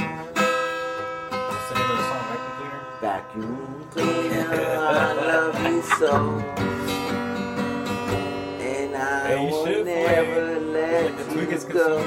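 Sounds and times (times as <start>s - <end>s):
acoustic guitar strumming: 0.0s - 12.0s
man singing: 1.6s - 7.3s, 8.4s - 12.0s.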